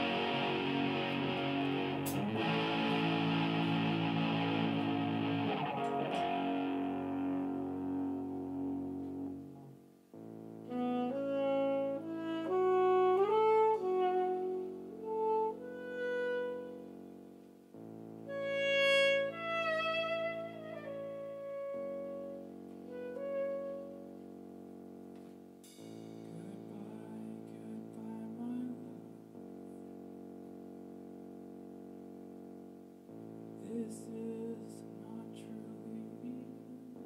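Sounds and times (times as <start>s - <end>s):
live band with electric guitar: 0.0s - 9.4s
saxophone slow melody: 0.0s - 37.0s
sustained chords: 0.0s - 37.0s.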